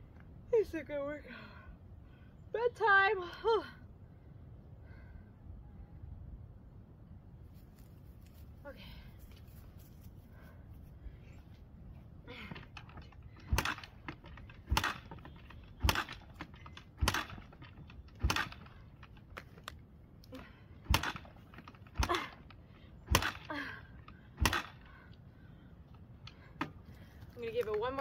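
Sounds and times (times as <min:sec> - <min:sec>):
motorcycle kick-starter clacks: 0:12.5 - 0:19.8.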